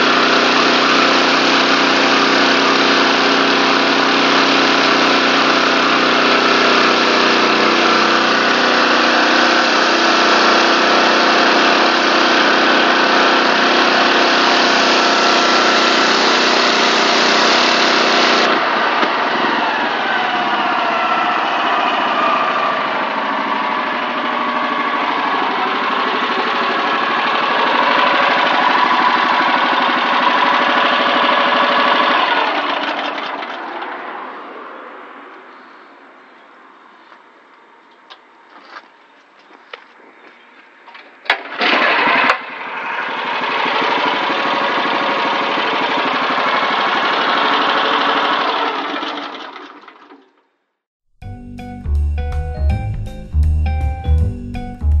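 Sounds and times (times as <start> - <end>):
petrol engine running: 0.0 - 34.7, 38.0 - 50.2, 51.2 - 55.0
water jet hissing on paving: 13.8 - 18.5.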